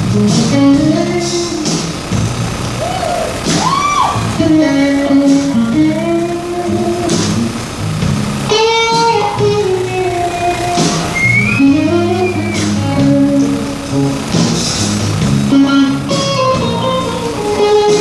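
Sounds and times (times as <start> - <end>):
bass: 0.0 - 18.0
drums: 0.0 - 18.0
electric guitar solo with bends: 0.0 - 18.0.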